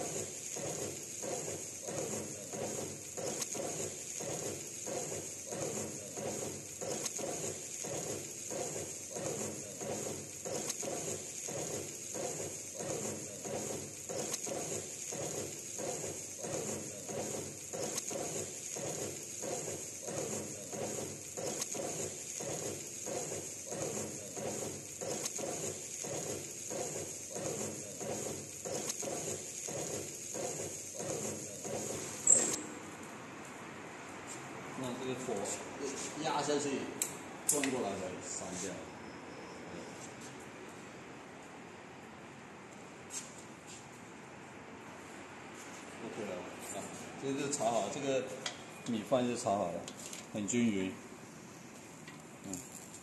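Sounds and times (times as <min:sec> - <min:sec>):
steady high hiss: 0:00.0 - 0:33.5.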